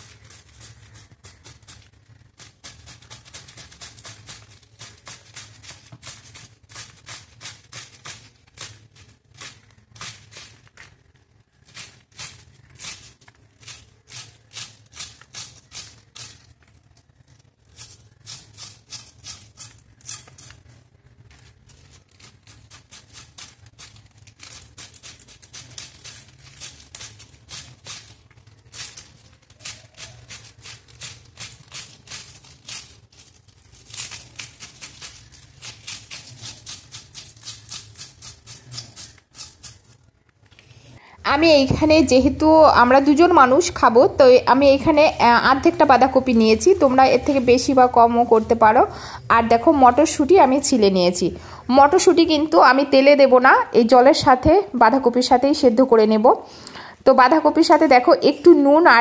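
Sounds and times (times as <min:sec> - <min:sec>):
blade shredding cabbage: 0:00.0 - 0:40.1, 0:43.0 - 0:48.8.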